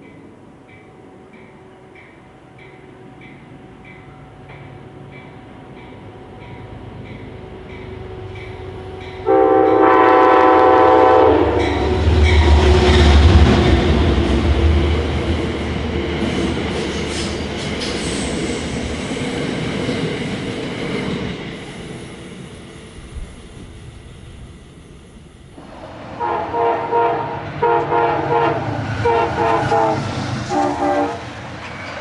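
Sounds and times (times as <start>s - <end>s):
train horn chord: 9.2s - 12.5s, 26.2s - 31.3s
train cars rolling clatter: 11.6s - 21.8s, 28.6s - 32.0s.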